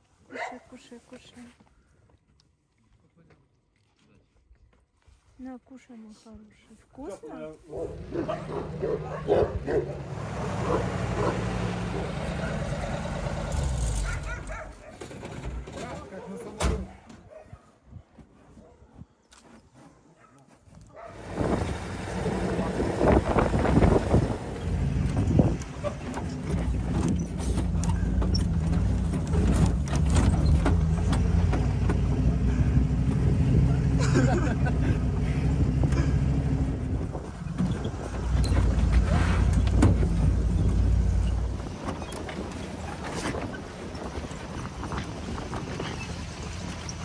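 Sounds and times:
dogs barking: 0:07.7 - 0:12.7, 0:14.0 - 0:15.1, 0:20.2 - 0:21.3
engine running: 0:07.7 - 0:15.9, 0:21.1 - 0:47.0.

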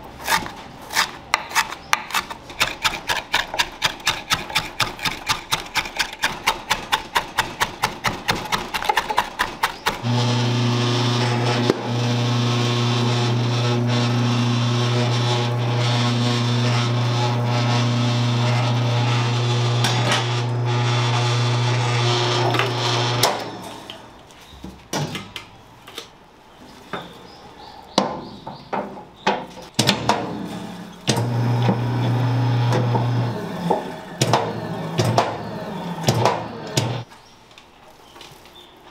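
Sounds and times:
electric meat mixer humming: 0:10.0 - 0:23.8, 0:31.2 - 0:37.0.

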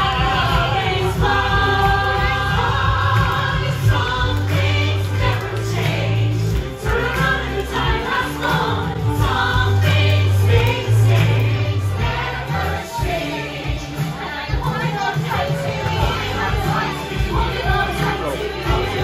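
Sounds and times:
voices singing over backing track: 0:00.0 - 0:19.0.

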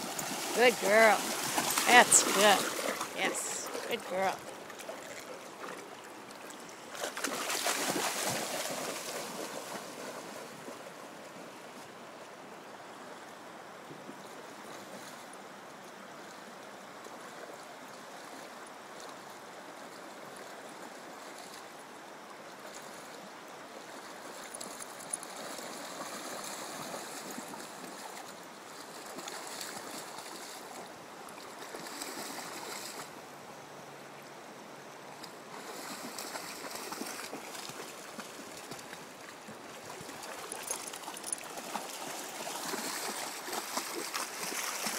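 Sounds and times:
river water over stones: 0:00.0 - 0:44.9
dog splashing in water: 0:00.1 - 0:04.0, 0:07.0 - 0:10.6, 0:35.6 - 0:38.8, 0:40.1 - 0:44.9.

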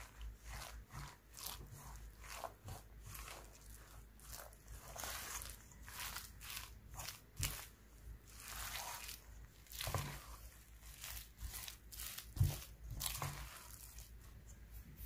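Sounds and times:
rustling and crinkling: 0:00.0 - 0:15.0.

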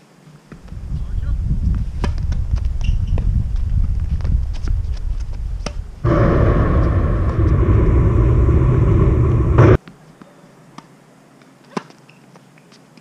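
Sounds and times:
loud low rumbling: 0:06.0 - 0:09.8.

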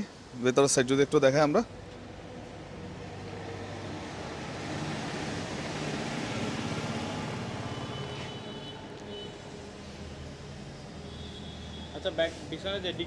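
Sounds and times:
vehicle passing: 0:02.2 - 0:11.1.

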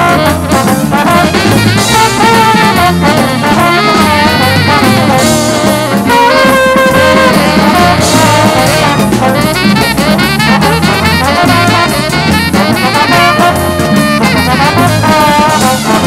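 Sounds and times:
bass: 0:00.0 - 0:16.0
drum kit: 0:00.0 - 0:16.0
horns playing melody: 0:00.0 - 0:16.0
jazz band playing blues: 0:00.0 - 0:16.0.

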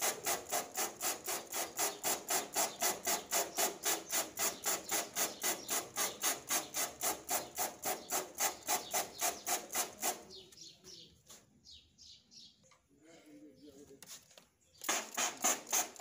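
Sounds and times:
trigger spray bottle spraying: 0:00.0 - 0:10.3, 0:14.8 - 0:16.0.

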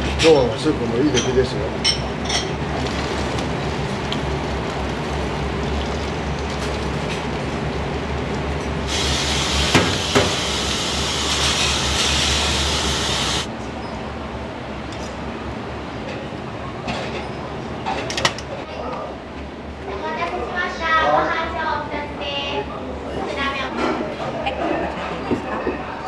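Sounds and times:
low kitchen rumble: 0:00.0 - 0:14.7
loud hiss: 0:08.9 - 0:13.5.

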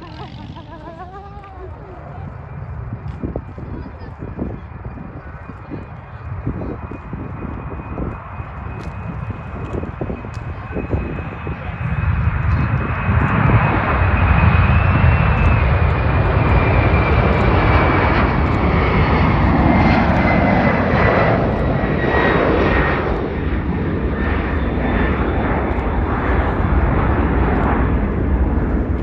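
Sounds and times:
high jet whine: 0:00.0 - 0:03.7
jet engines roaring: 0:00.0 - 0:29.0.

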